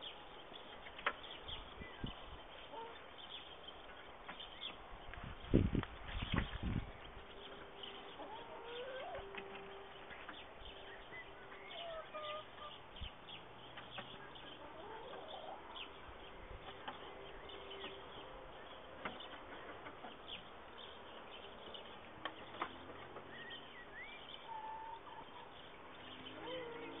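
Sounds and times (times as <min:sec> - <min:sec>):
hen clucking softly: 0:14.5 - 0:15.8.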